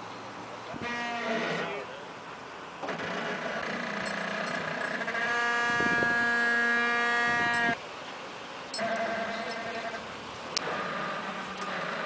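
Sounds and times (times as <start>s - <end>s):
landing gear squealing: 2.8s - 7.8s, 8.8s - 12.0s.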